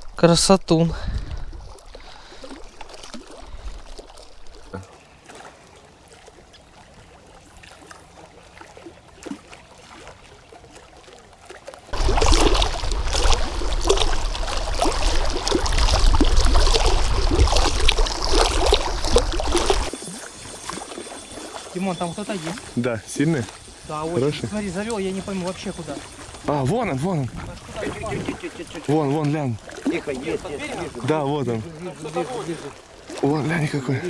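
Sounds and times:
faint water sounds: 0:00.0 - 0:34.0
water splashing: 0:00.0 - 0:34.0
wind on microphone: 0:00.9 - 0:01.8, 0:12.0 - 0:19.9, 0:23.7 - 0:28.6.

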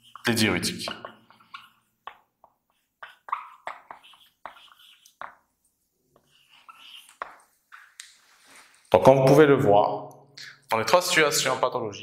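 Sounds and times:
marker squeaking on whiteboard: 0:00.0 - 0:08.9.

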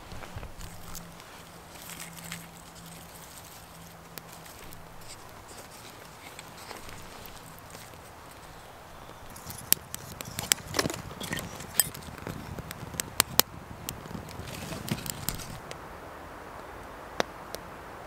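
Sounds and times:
wood fire crackling: 0:00.0 - 0:15.9
fire pops and snaps: 0:00.1 - 0:15.8.

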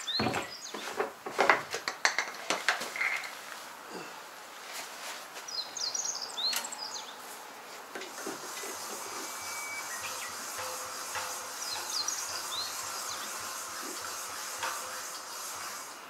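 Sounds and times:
birds chirping: 0:00.0 - 0:01.0, 0:05.5 - 0:07.3, 0:08.8 - 0:14.6.

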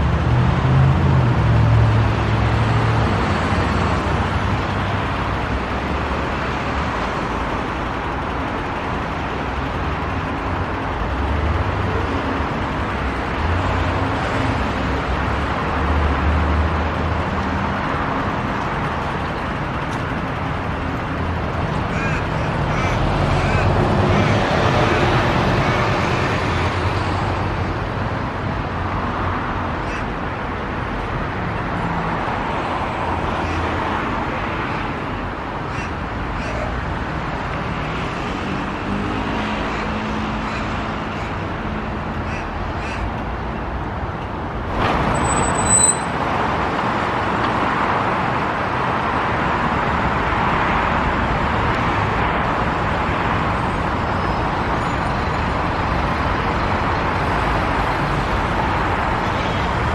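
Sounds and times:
road traffic: 0:00.0 - 0:59.9
ravens cawing: 0:21.8 - 0:24.7, 0:29.8 - 0:30.2, 0:33.2 - 0:33.9, 0:35.6 - 0:36.8, 0:39.4 - 0:43.2
high-pitched squeal: 0:44.8 - 0:46.2.

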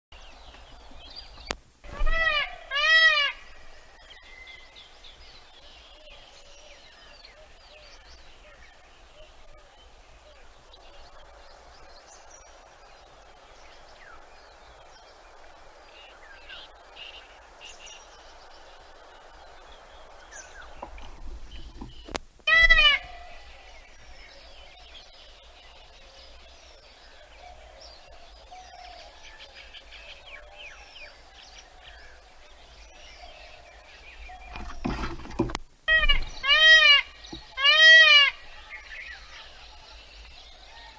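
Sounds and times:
peacock call: 0:01.9 - 0:04.6, 0:22.4 - 0:23.8, 0:35.9 - 0:39.5
small birds chirping: 0:03.4 - 0:40.9.

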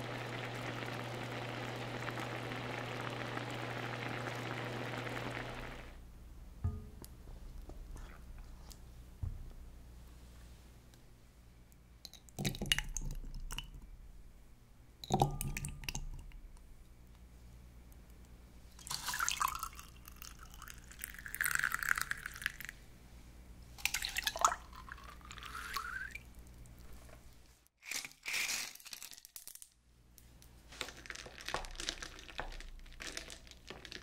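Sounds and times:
tea pouring into a glass: 0:00.0 - 0:05.9, 0:18.8 - 0:22.7, 0:23.8 - 0:26.2.

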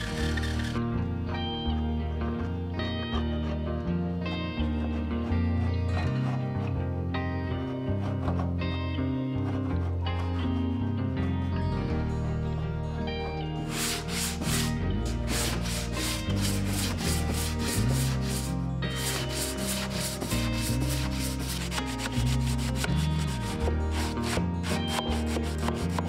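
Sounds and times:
sandpaper rubbing on wood: 0:00.0 - 0:00.8, 0:13.7 - 0:26.0
background music with low bass: 0:00.0 - 0:26.0.

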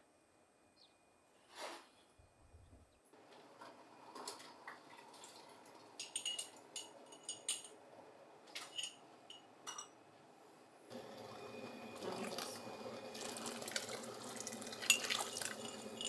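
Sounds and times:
glass jars clinking: 0:06.0 - 0:07.7, 0:14.4 - 0:16.0.

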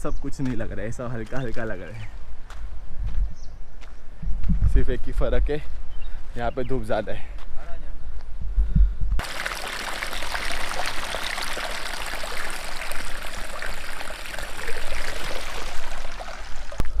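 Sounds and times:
water trickling into rocky pool: 0:09.2 - 0:17.0.

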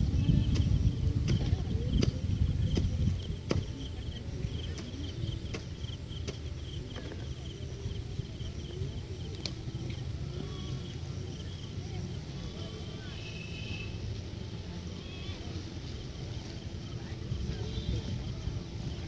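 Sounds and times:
steady low rumble: 0:00.0 - 0:12.6
insects chirping trill: 0:00.0 - 0:19.0
faint sharp clicks: 0:09.3 - 0:10.0.

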